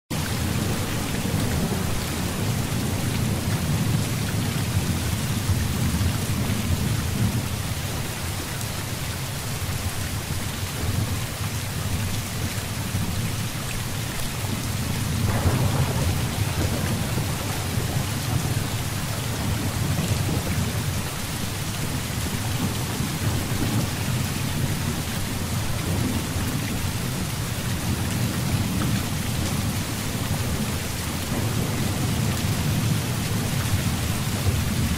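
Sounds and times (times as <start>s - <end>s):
heavy rain falling: 0.1s - 34.9s
low rumble of thunder: 0.2s - 8.5s, 14.1s - 34.9s
sharp thunderclap: 14.9s - 21.0s, 30.4s - 34.9s.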